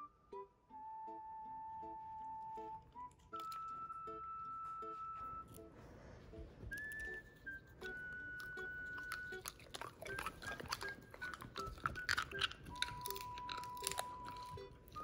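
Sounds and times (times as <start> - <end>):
simple background music: 0.0 - 15.0
dog chewing crunchy treat: 2.9 - 4.0, 6.7 - 15.0.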